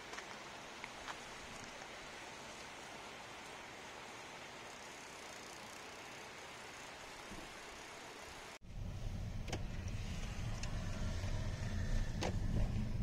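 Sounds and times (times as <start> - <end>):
faint steady hiss: 0.0 - 8.6
car road and engine rumble: 8.6 - 13.0.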